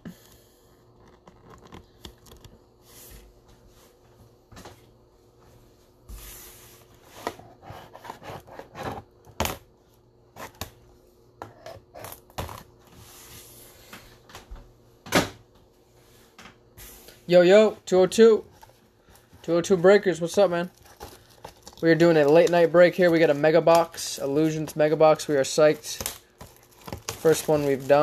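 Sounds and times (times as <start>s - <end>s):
cardboard rustling: 18.2s - 28.0s.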